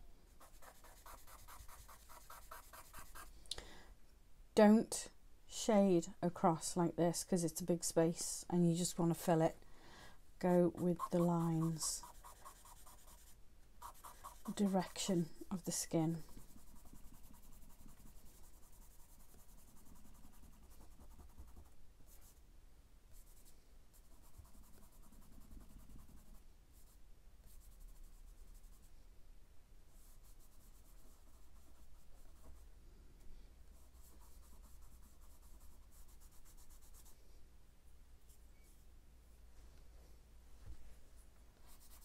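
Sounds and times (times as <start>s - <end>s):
charcoal scratching on paper: 0.4s - 3.3s, 10.4s - 22.4s, 23.2s - 28.9s, 29.9s - 32.6s, 33.7s - 37.2s, 41.7s - 42.0s.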